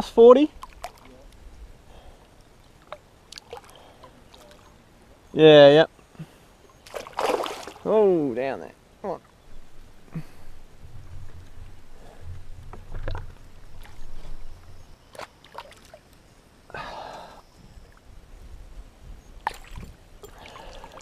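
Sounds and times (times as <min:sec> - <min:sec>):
water splashing: 0:00.5 - 0:01.4, 0:02.7 - 0:04.8, 0:06.8 - 0:08.0, 0:12.9 - 0:16.2, 0:19.4 - 0:21.0
knocks and rustles against canoe: 0:11.1 - 0:16.0.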